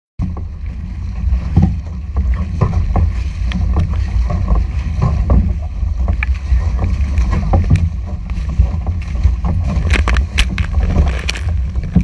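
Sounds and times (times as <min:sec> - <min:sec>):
paddle splashes: 0:00.2 - 0:12.0
water rushing along a hull: 0:00.2 - 0:12.0
wind rumble on microphone: 0:00.2 - 0:12.0.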